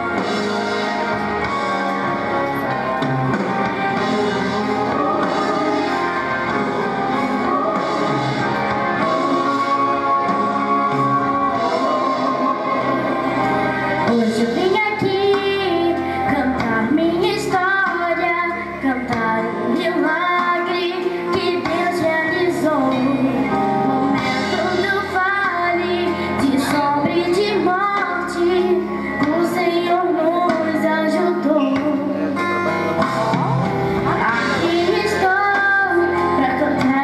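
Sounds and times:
instrumental accompaniment: 0.0s - 37.0s
girl singing into a microphone: 14.0s - 32.3s, 34.1s - 37.0s.

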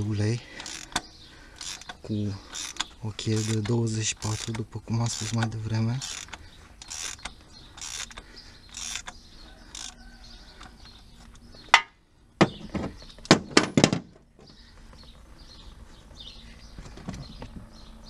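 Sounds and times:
ratchet clicks: 0.5s - 10.0s.

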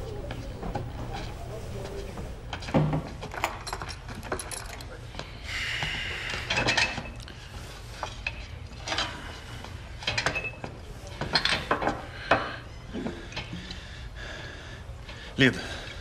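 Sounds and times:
glassware and metal clinking: 2.8s - 5.0s, 10.1s - 10.7s.

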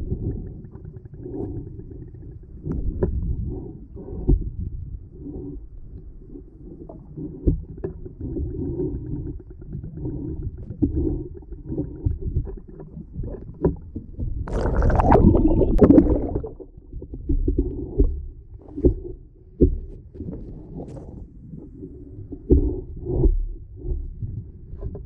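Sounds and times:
underwater water rumble: 0.0s - 25.0s
water splashing: 14.5s - 16.8s.

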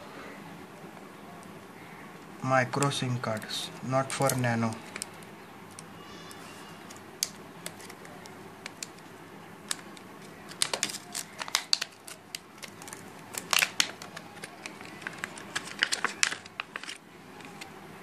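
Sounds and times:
plastic packaging crinkling: 9.6s - 17.7s.

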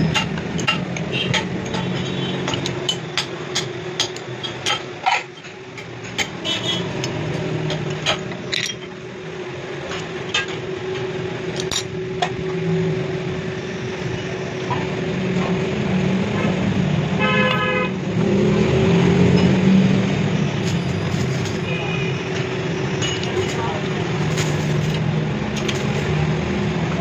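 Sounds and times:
metallic clinks and knocks: 7.6s - 9.0s.

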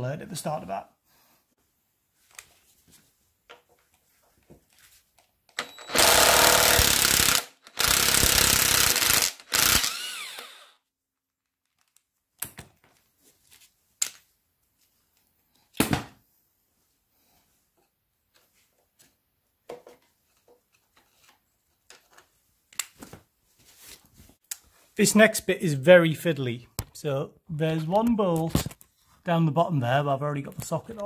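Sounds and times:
impact wrench hammering: 5.6s - 10.6s
motor whining down: 9.4s - 10.7s.

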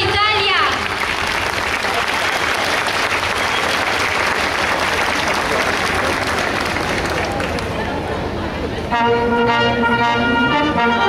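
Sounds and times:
crowd applauding: 0.2s - 8.2s.

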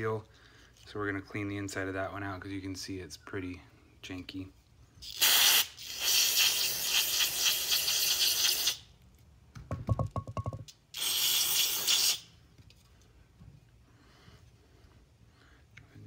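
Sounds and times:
aerosol spray hissing: 5.0s - 8.8s.

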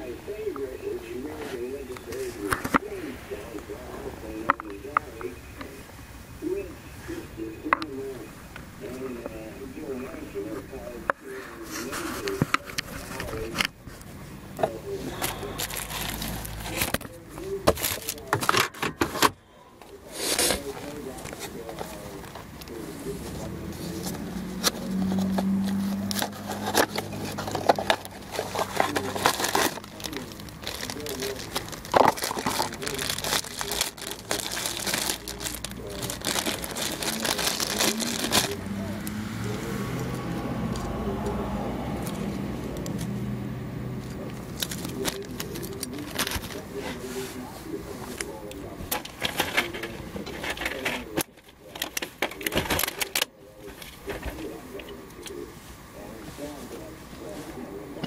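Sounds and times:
cardboard box rustling: 20.0s - 38.8s
hard parts clicking and knocking: 24.0s - 38.5s.

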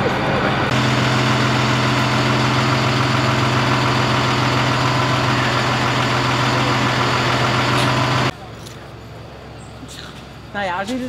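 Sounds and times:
diesel engine idling: 0.2s - 8.4s.

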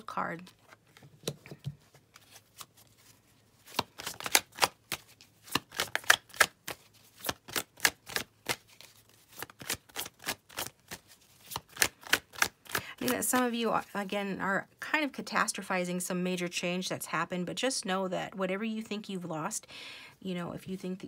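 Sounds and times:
cards being shuffled: 0.4s - 13.9s.

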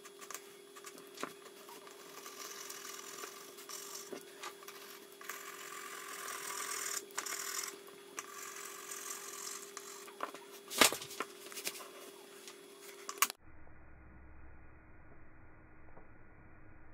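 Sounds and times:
pencil scratching on paper: 0.0s - 10.6s
steady hum: 0.0s - 16.9s.

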